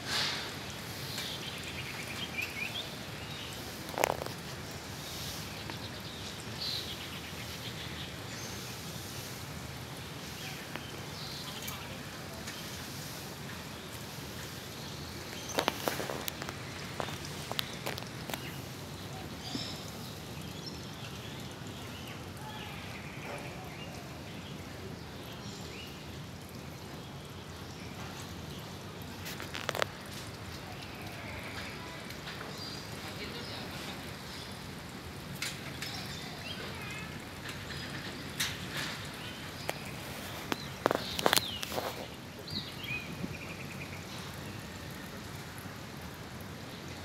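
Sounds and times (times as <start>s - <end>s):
outdoor background noise: 0.0s - 47.0s
small birds chirping: 0.2s - 26.1s, 35.4s - 45.1s.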